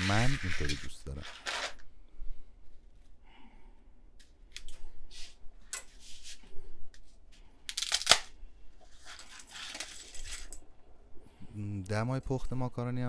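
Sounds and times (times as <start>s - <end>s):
dry spaghetti snapping: 7.7s - 8.4s.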